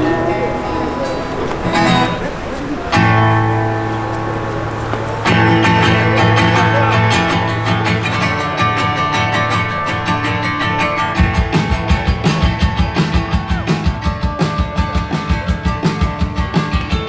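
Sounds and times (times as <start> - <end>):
electric guitars: 0.0 - 17.0
strummed acoustic guitar: 0.0 - 17.0.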